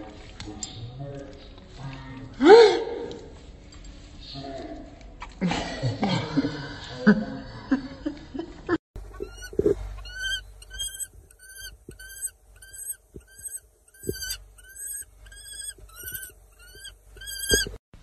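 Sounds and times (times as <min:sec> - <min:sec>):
falcon calling: 0:09.1 - 0:17.8.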